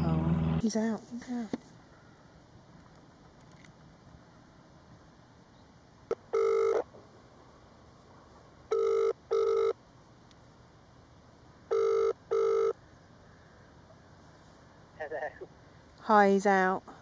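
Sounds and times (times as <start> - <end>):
telephone ringing: 6.3 - 6.8, 8.7 - 9.8, 11.7 - 12.8.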